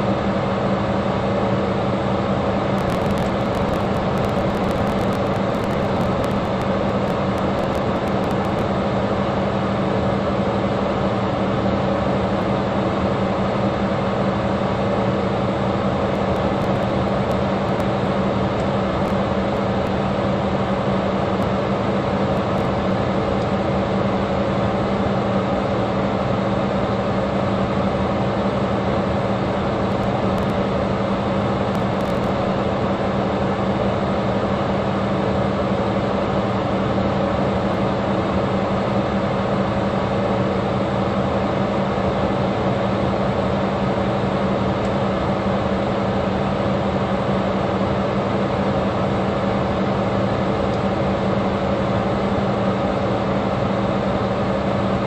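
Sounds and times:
low motor hum: 2.4 - 55.0.

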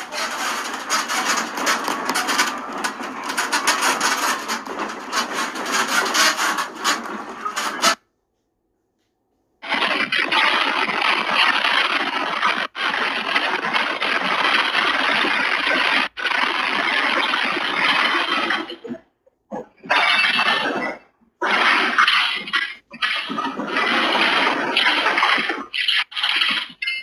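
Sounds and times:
furniture and objects rattling: 0.0 - 8.0
room creaking: 0.0 - 27.0.

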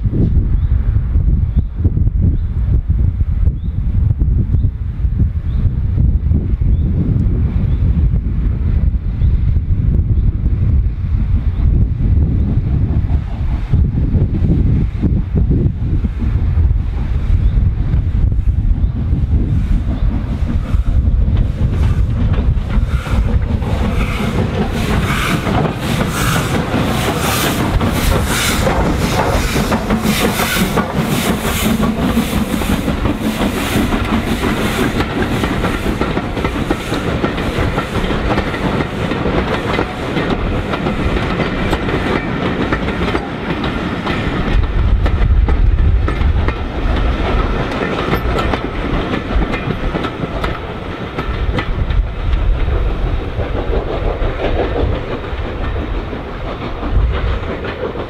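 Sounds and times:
wind buffeting microphone: 0.0 - 58.0
steam locomotive exhaust beating: 6.0 - 58.0
train wheels clicking over rail joints: 17.8 - 58.0.

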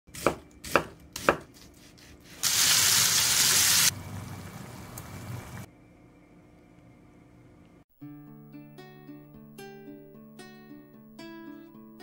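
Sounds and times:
seasoning sprinkling hiss: 2.3 - 5.6.

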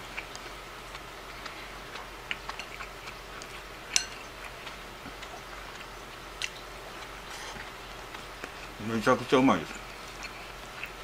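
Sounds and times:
soft eating sounds: 0.0 - 11.0.

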